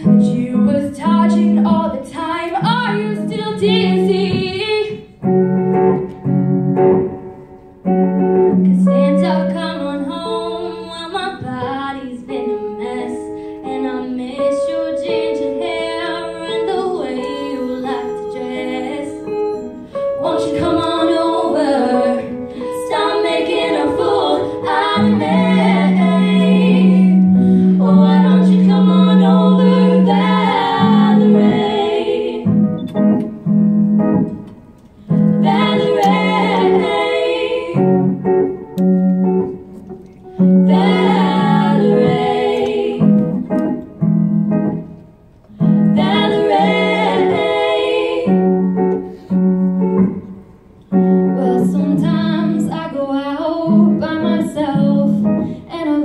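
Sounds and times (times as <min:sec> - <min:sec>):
women singing in harmony: 0:00.0 - 0:05.1, 0:08.7 - 0:33.1, 0:35.2 - 0:38.4, 0:40.4 - 0:43.8, 0:45.6 - 0:49.3, 0:51.3 - 0:56.0.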